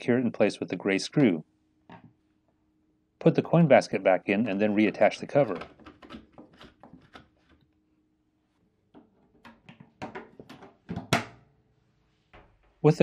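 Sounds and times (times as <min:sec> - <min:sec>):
plastic clicks and knocks: 0:05.4 - 0:07.6, 0:08.9 - 0:11.4.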